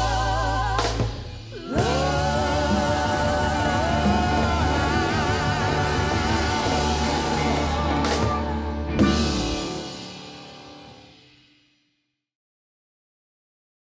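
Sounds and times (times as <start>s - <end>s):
bass: 0.0s - 11.0s
voices singing with vibrato: 0.0s - 11.0s
piano: 0.0s - 11.6s.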